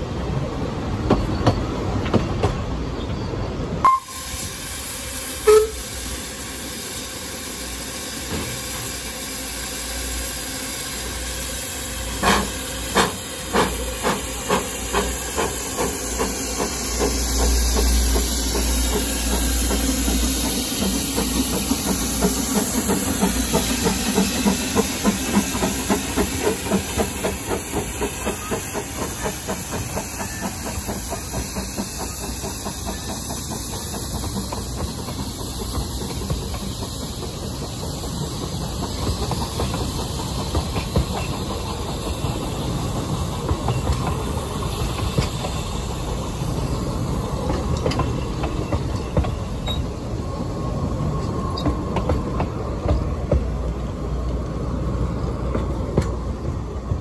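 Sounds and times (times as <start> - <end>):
steam locomotive exhaust beats: 3.7 - 57.0
steam whistle: 3.8 - 4.6, 5.3 - 6.5
steam hissing: 3.8 - 55.6.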